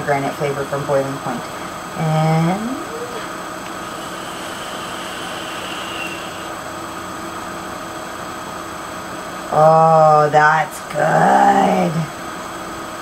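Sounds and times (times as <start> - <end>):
airy hiss of vape draw: 3.7 - 6.6.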